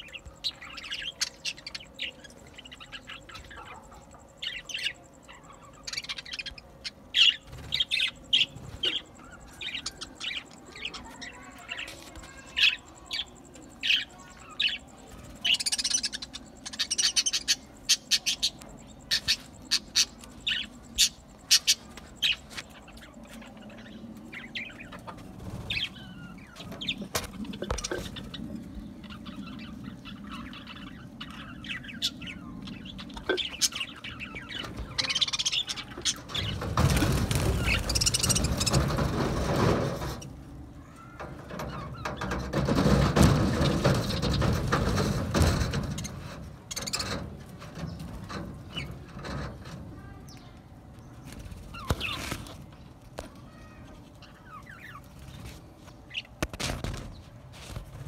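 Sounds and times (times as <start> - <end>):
budgerigars chirping: 13.3 - 23.2.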